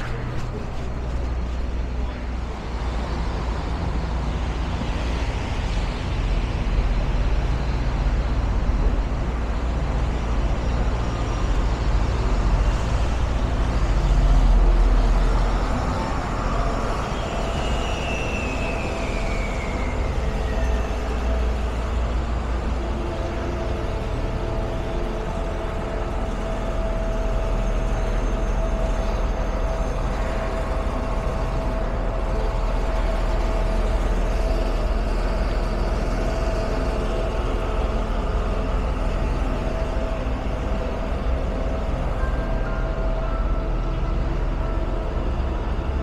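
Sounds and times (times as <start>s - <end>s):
street traffic rumble: 0.0s - 46.0s
faint high-pitched squeal: 13.8s - 46.0s.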